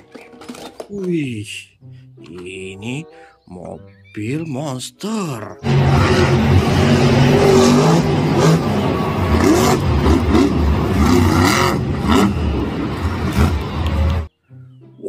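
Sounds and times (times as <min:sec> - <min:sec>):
rushing noise: 0:05.6 - 0:14.3
vehicle engine revving: 0:05.6 - 0:14.3.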